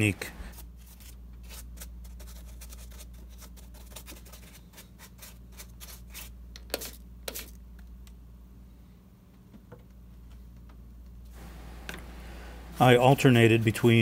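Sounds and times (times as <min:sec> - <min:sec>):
steady low hum: 0:00.0 - 0:14.0
brush dabbing and scratching: 0:00.4 - 0:07.6.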